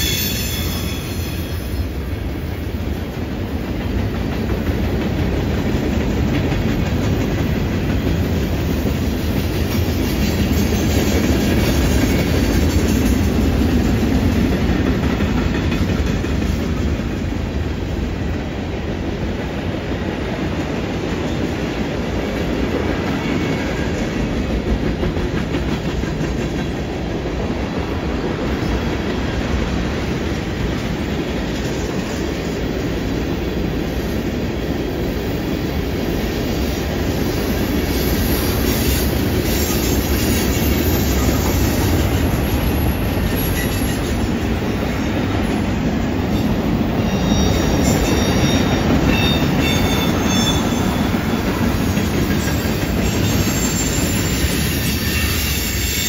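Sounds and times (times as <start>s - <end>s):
high-pitched wheel squeal: 0.0s - 1.9s, 47.0s - 51.4s, 52.4s - 56.0s
train wheels rumbling on rails: 0.0s - 56.0s.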